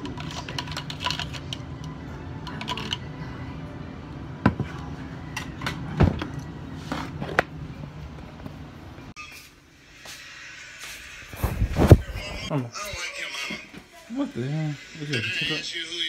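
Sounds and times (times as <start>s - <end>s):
spoon stirring in plastic cup: 0.0s - 1.6s, 2.4s - 3.1s.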